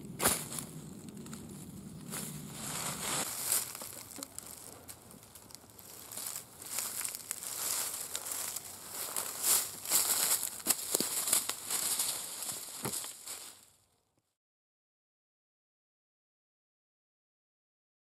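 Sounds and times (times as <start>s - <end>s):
dry leaves crunching underfoot: 0.0s - 13.8s.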